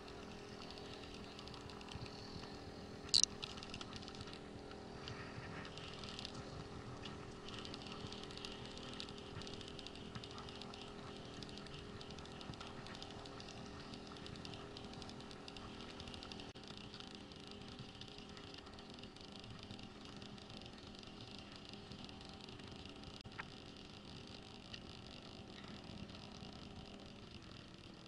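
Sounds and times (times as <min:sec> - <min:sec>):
steady low hum: 0:00.0 - 0:28.0
fishing reel gears ticking: 0:03.1 - 0:03.5.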